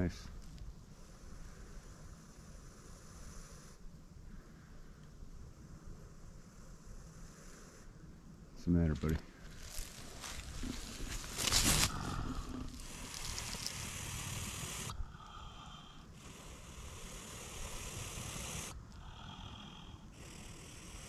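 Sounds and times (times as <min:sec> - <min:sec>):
badger growling: 0:09.6 - 0:21.0.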